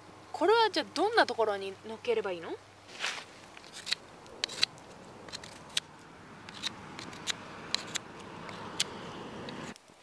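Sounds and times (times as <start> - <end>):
soft steady hiss: 0.0 - 10.0
folding knife metallic clicks: 3.7 - 9.8.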